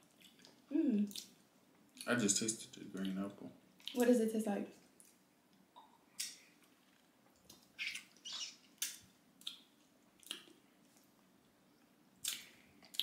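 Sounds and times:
lip smacks and sucking: 5.8s - 11.1s, 12.2s - 13.0s.

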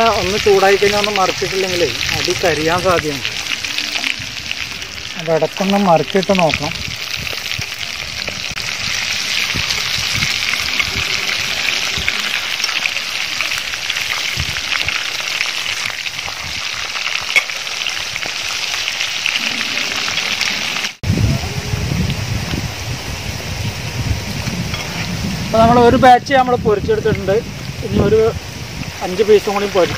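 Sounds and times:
hot oil sizzling: 0.0s - 29.9s
low rumble: 1.1s - 5.3s.

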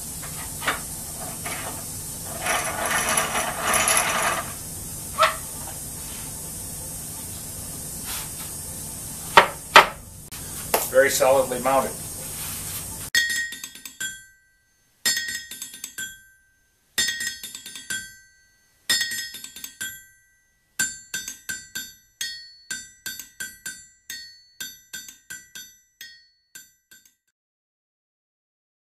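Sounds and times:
hammer ringing on anvil: 13.2s - 27.2s.

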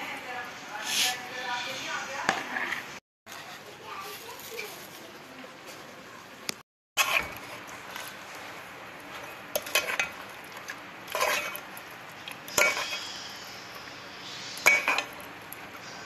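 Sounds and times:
metal spoon clinking in a pot: 9.2s - 10.3s, 11.1s - 13.2s, 14.4s - 15.6s.

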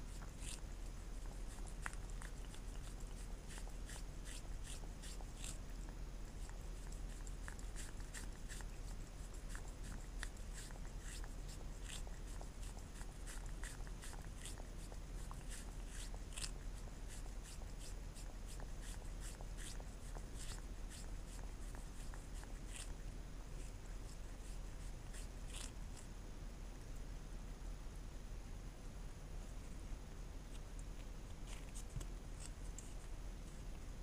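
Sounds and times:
cat lapping: 0.1s - 23.0s.

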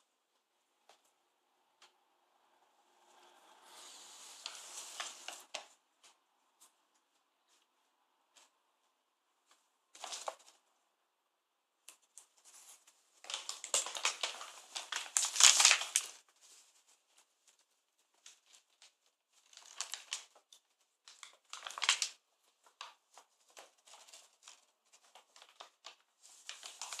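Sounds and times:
paper bag crinkling and rustling: 4.0s - 5.7s, 10.0s - 10.6s, 12.5s - 16.9s, 18.2s - 27.0s.

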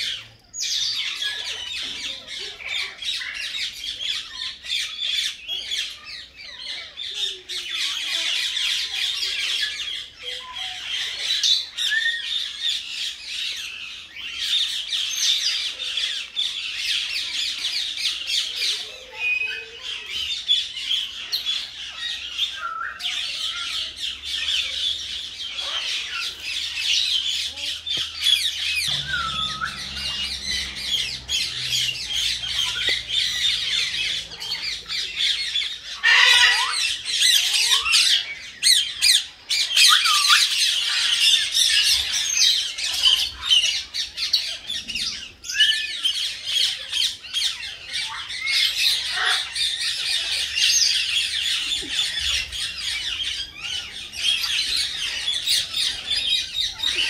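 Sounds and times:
mynas squawking and chattering: 25.4s - 38.0s.

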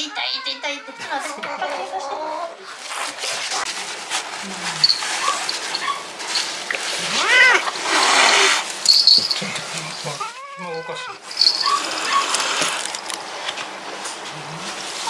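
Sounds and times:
cat hissing: 6.9s - 8.7s, 9.4s - 12.9s
cat yowling: 7.0s - 8.6s, 10.2s - 12.6s.

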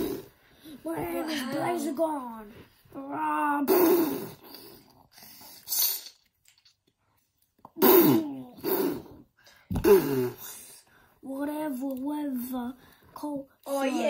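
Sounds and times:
child hissing breathily: 3.6s - 6.2s, 7.8s - 9.2s
child growling and roaring: 8.0s - 8.8s.

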